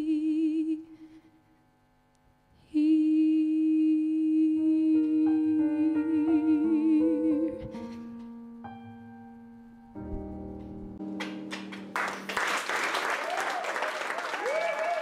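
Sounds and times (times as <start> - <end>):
woman singing ballad: 2.7 - 7.8
piano chords: 4.5 - 12.5.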